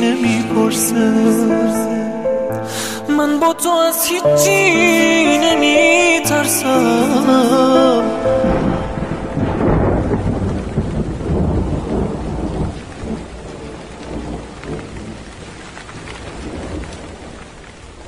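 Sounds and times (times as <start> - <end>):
thunder rumble: 6.8 - 18.0
rain: 8.4 - 18.0.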